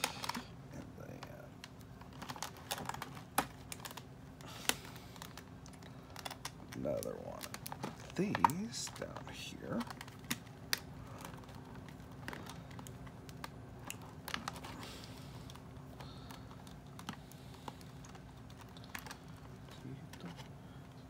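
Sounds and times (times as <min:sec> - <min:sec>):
faint steady hum: 0:00.0 - 0:21.0
plastic packaging clicks and taps: 0:04.6 - 0:09.0, 0:09.7 - 0:14.7.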